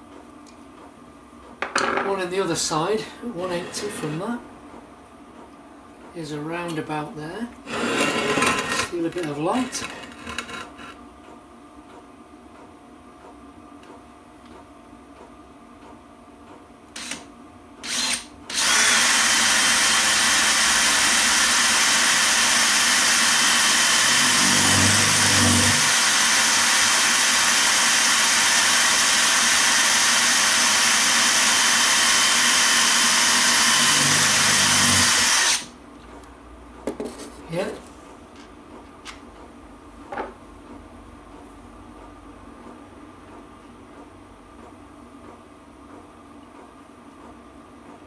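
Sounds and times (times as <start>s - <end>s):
cordless drill drilling into steel: 17.0s - 17.2s, 17.8s - 35.7s.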